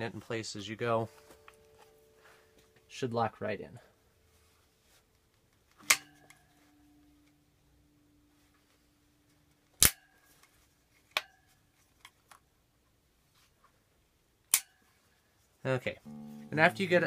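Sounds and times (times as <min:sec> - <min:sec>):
short ringing tone: 0:16.1 - 0:17.0.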